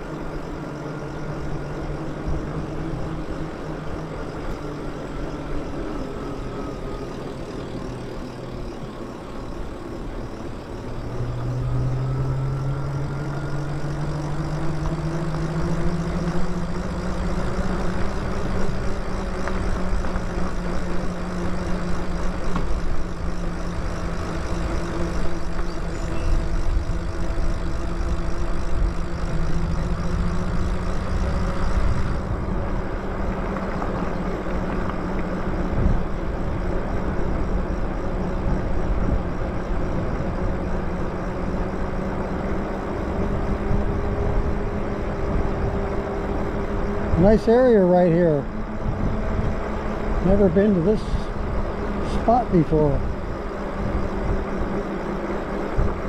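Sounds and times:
electric bike motor whining: 0.0s - 56.0s
wind rush on microphone: 29.8s - 56.0s.

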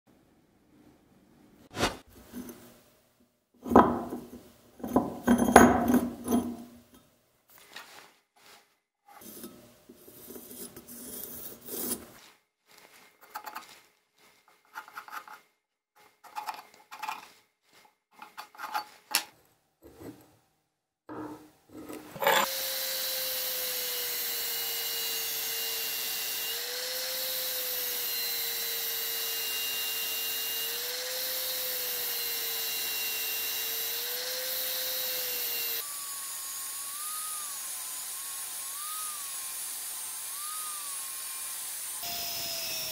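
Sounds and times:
pencil scratching on steel: 9.2s - 12.2s
electric grinder whining: 22.2s - 42.9s.

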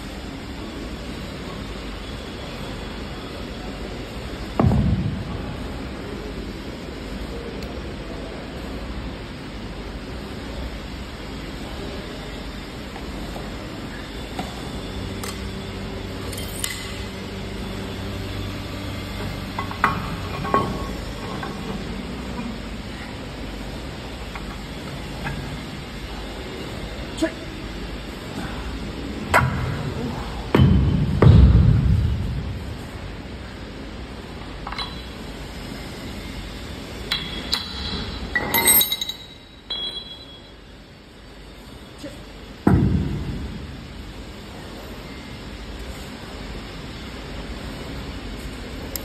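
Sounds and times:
steady low hum: 0.0s - 49.0s
steel machine parts clinking: 37.1s - 40.4s.

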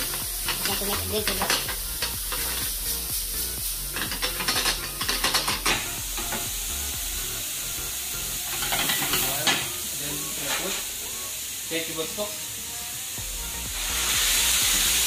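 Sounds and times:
vegetables sizzling in oil: 0.0s - 15.0s.

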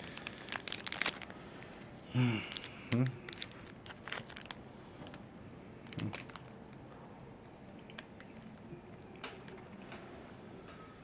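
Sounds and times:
biting and chewing cookie: 7.5s - 10.4s.

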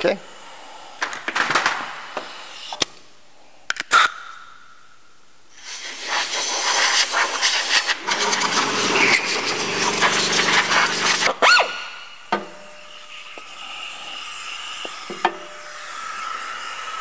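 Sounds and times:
compressed air blow gun hissing: 5.5s - 17.0s.

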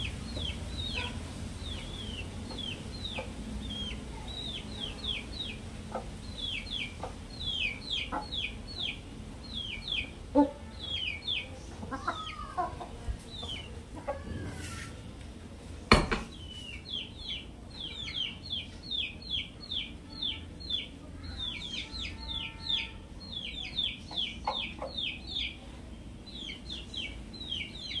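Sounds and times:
chickens peeping: 0.0s - 15.2s, 16.2s - 28.0s
sharp knock: 15.9s - 16.4s.

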